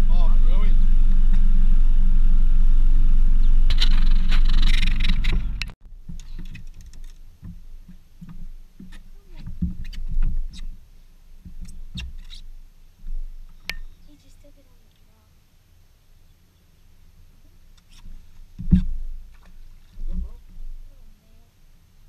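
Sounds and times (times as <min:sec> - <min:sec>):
outboard motor running: 0:00.0 - 0:05.7.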